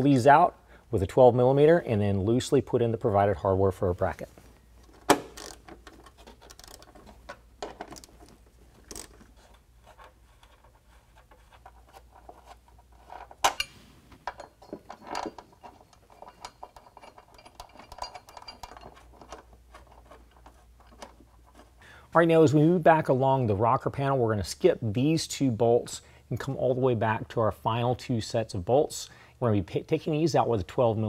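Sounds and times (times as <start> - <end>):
metal bolts clinking and scraping: 4.8 - 21.8.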